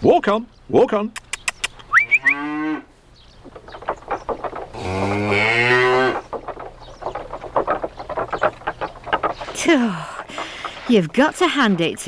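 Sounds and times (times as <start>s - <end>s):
cow mooing: 2.0s - 2.9s, 4.5s - 6.2s
faint rapid knocking: 3.4s - 12.0s.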